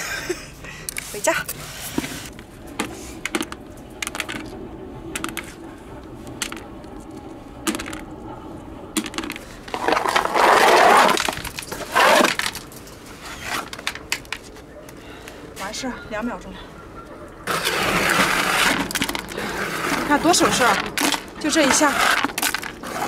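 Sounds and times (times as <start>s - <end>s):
snail shells clattering in bucket: 3.2s - 4.5s, 5.1s - 5.5s, 7.6s - 8.1s, 9.0s - 12.9s, 17.6s - 23.0s
wooden scraper rasping on concrete: 9.7s - 12.6s, 17.5s - 23.0s.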